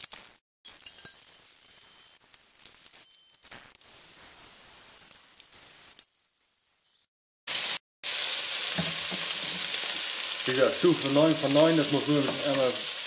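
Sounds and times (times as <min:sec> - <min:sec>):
chicken sizzling in frying pan: 0:07.5 - 0:13.0.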